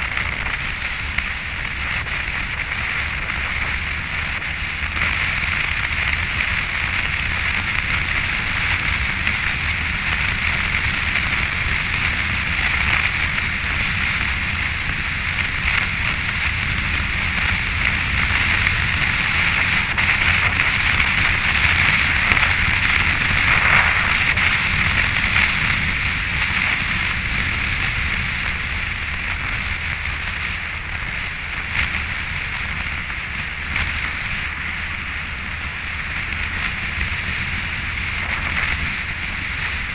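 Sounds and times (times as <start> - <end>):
low motorcycle rumble: 0.0 - 39.9
wind and road noise: 0.0 - 39.9.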